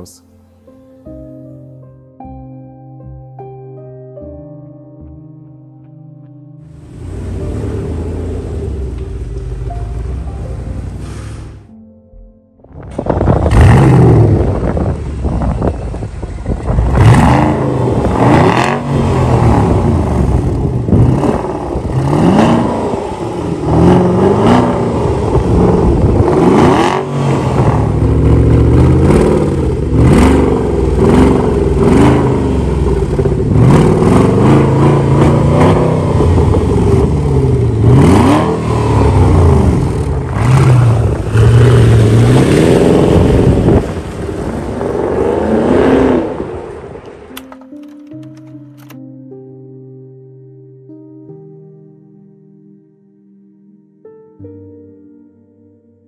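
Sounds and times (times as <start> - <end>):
car pulling away: 6.6 - 11.8, 12.6 - 48.2
car exhaust revving: 6.7 - 11.8, 12.6 - 47.4.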